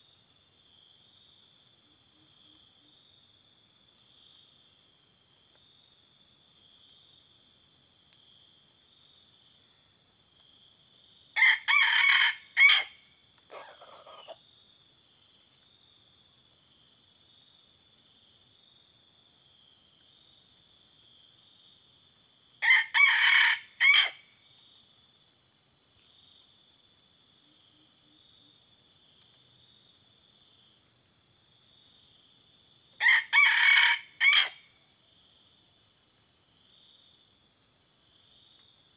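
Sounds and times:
high-pitched insect chorus: 0.0s - 38.9s
rooster crowing: 11.4s - 14.4s, 22.6s - 24.2s, 33.0s - 34.6s.

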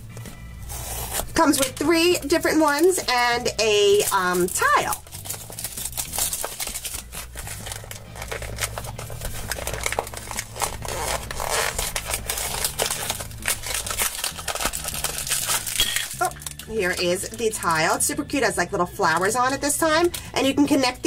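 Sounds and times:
cardboard box tearing: 0.6s - 1.4s, 5.0s - 16.4s
packaging crinkling: 0.7s - 17.4s.

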